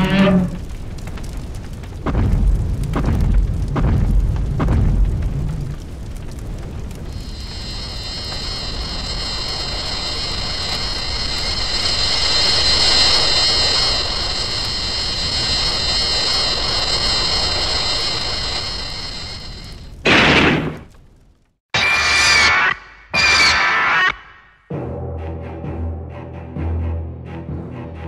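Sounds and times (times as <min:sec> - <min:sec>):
jet-like whine: 0:00.0 - 0:00.8, 0:07.0 - 0:20.2
rushing roar: 0:00.0 - 0:00.8.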